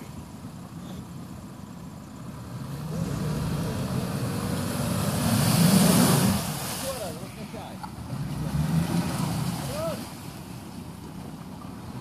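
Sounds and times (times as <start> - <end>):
engine revving under load: 2.3 - 6.8, 7.8 - 10.2
mud and water spray hissing: 2.6 - 10.6.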